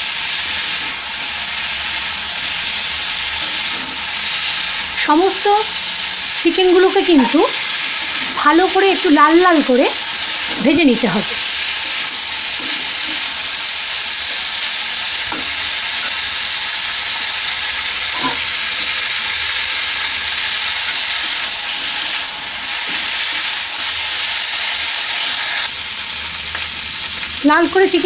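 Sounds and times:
chicken sizzling in hot oil: 0.0s - 28.0s
metal spatula scraping and tapping: 15.3s - 16.3s.

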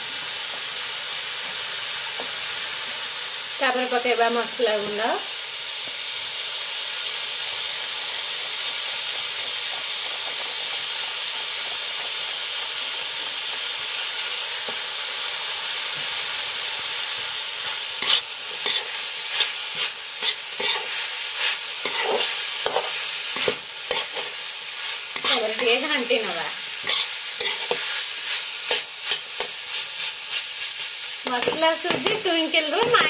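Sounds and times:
vegetables sizzling in oil: 0.0s - 33.0s
metal spatula scraping pan: 18.0s - 21.0s, 21.8s - 24.4s, 25.1s - 25.8s, 26.8s - 27.9s.

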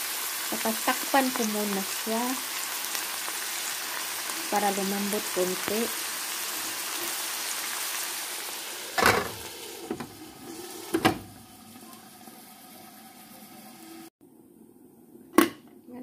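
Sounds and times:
food sizzling in a pan: 0.0s - 14.1s.

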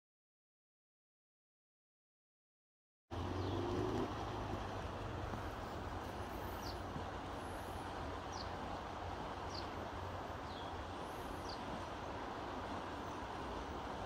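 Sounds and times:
river rushing over riffles: 3.1s - 14.0s
bird chirping: 3.3s - 4.0s, 6.5s - 6.9s, 9.5s - 9.8s.

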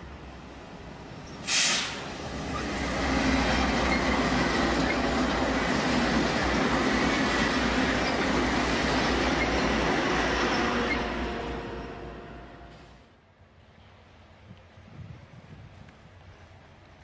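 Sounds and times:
freight locomotives rumbling past: 0.0s - 17.0s
short sharp hiss: 1.4s - 2.1s.

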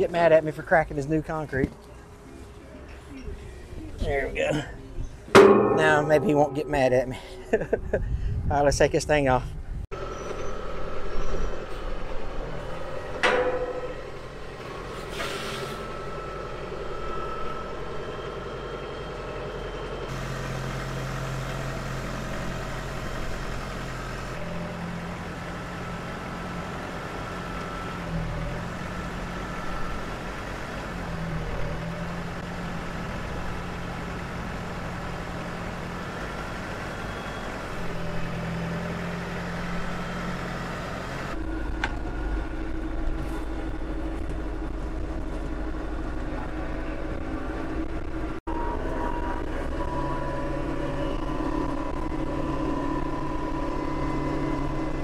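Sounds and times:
sharp clunks: 5.3s - 7.3s, 13.1s - 15.4s
tractor diesel engine running: 9.9s - 55.0s.

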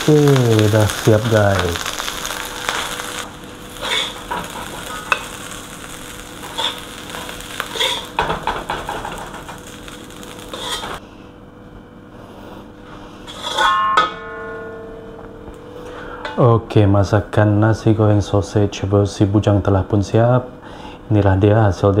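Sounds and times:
sizzle from hot pan: 0.0s - 11.0s
spatula scraping a wok: 2.0s - 5.4s, 6.4s - 9.4s, 10.4s - 11.0s, 13.2s - 13.7s.

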